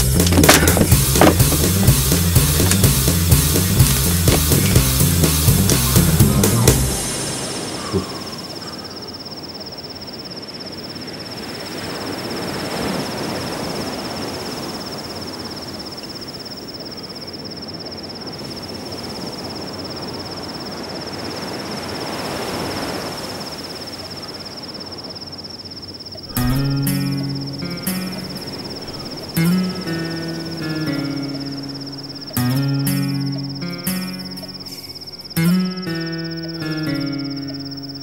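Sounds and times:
heavy rock music: 0.0 - 8.1, 26.3 - 31.6
even hiss: 0.0 - 9.2
high-pitched whine: 0.0 - 11.1, 26.2 - 38.0.

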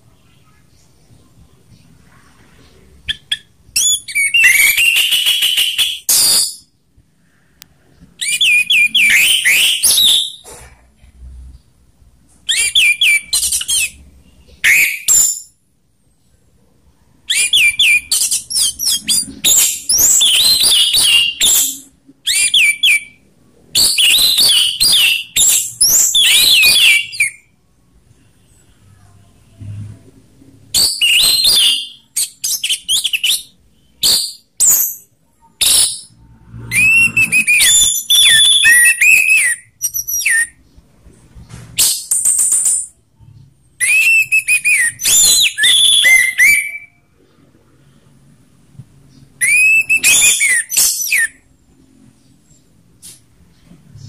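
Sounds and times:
thrush singing whistled notes: 35.6 - 40.6, 43.8 - 47.1, 49.4 - 51.5.

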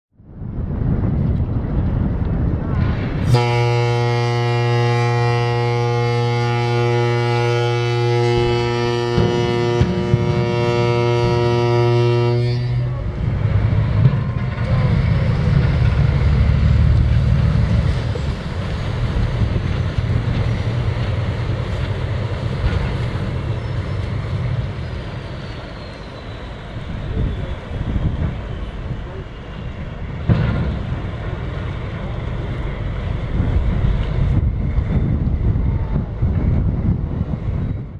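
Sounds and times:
ship's horn blast: 3.2 - 13.4.

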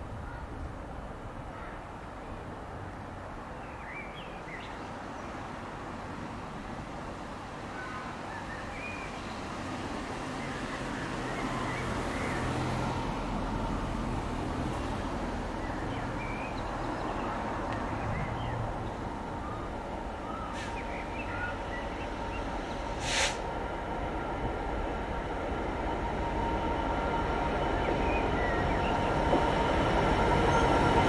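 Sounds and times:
diesel locomotive engine rumble: 8.6 - 31.0
short hiss: 20.6 - 20.8, 23.0 - 23.5.

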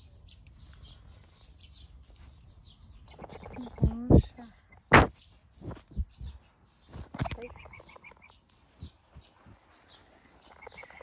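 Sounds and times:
bird chirps: 0.0 - 11.0
faint bird calls: 3.0 - 11.0.

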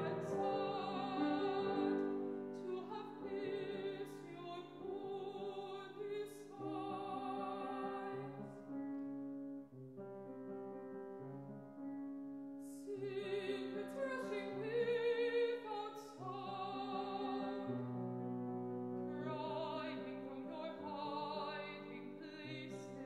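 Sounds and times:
person singing with wide vibrato: 0.0 - 8.6, 12.7 - 17.8, 19.1 - 23.0
grand piano: 0.0 - 23.0.

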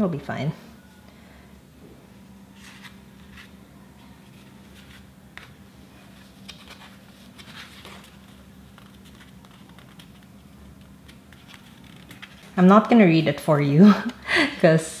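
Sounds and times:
steady low hum: 0.0 - 15.0
paper and thread rustling: 2.5 - 12.9.

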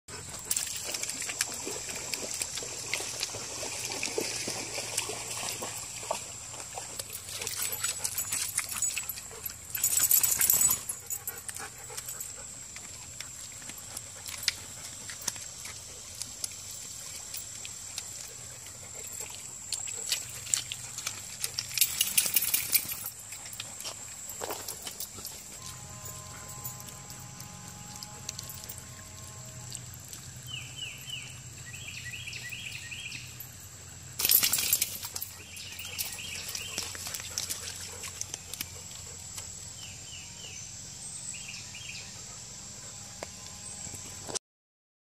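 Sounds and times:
dog paws clicking on stones: 6.8 - 28.8, 34.2 - 39.6.

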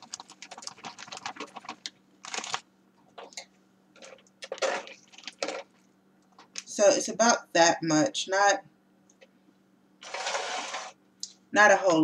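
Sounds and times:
plastic bag crinkling: 0.0 - 3.4, 4.0 - 5.9.

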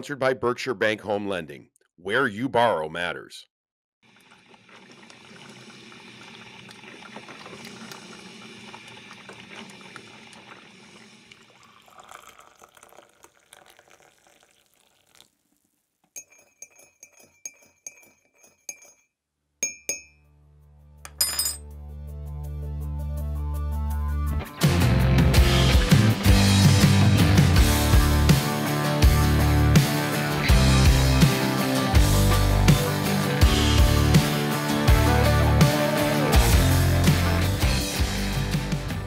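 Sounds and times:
coffee pouring into a mug: 4.1 - 17.2
spoon clinking against cup: 16.2 - 20.2, 21.1 - 21.6.

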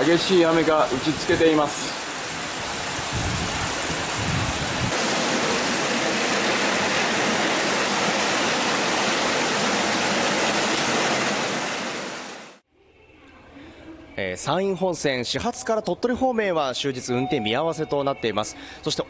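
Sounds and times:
heavy rain pouring: 0.0 - 12.6
water running off roof: 0.0 - 12.6.

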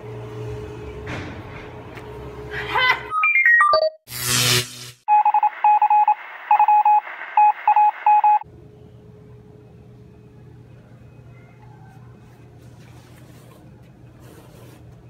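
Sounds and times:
telephone dialing beeps: 5.1 - 8.4.

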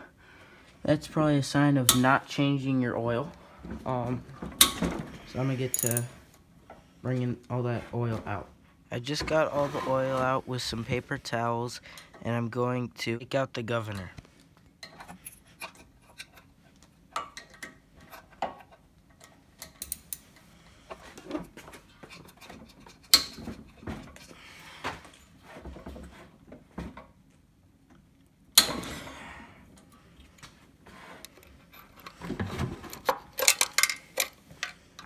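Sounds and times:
hand tools clicking on metal: 5.7 - 6.1, 19.6 - 20.2, 32.9 - 35.0.

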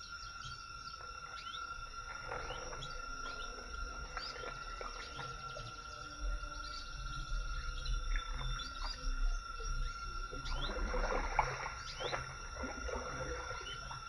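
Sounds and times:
high insect drone: 0.0 - 14.0
low rumble: 0.0 - 14.0
bird chirps and whistled calls: 4.2 - 10.8.

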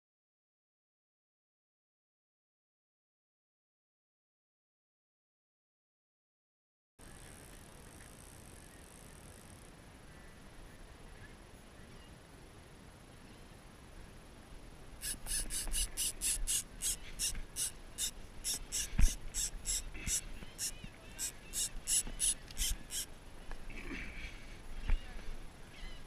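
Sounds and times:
fishing reel drag buzzing: 15.0 - 23.1.

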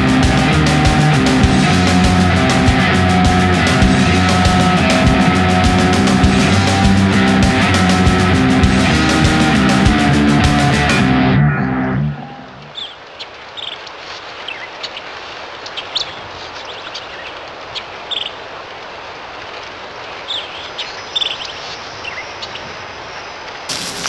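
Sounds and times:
steady rushing noise: 0.0 - 12.7, 22.9 - 24.0
high bird chirps: 12.6 - 13.0.

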